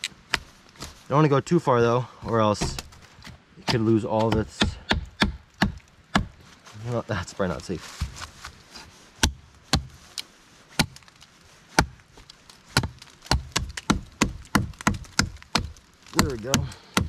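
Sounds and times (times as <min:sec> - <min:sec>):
hatchet chopping wooden pole: 0:02.6 - 0:06.4, 0:09.2 - 0:10.0, 0:10.8 - 0:11.1, 0:11.8 - 0:12.0, 0:12.7 - 0:17.0.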